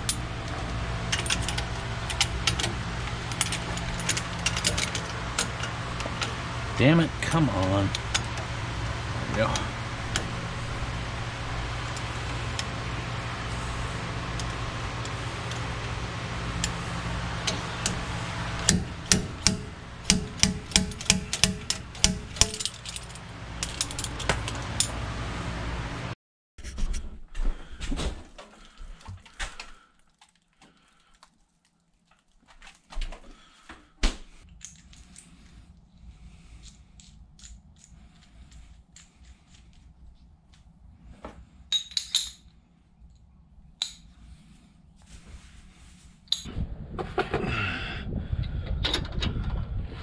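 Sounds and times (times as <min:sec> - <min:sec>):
metallic clinks and knocks: 0:01.0 - 0:06.4, 0:17.4 - 0:25.0, 0:41.7 - 0:42.5, 0:46.3 - 0:46.5.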